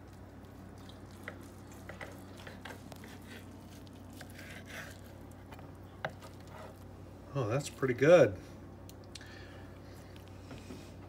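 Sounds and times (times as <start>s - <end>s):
steady low hum: 0.0s - 11.0s
knife sawing through meatloaf: 1.8s - 5.2s.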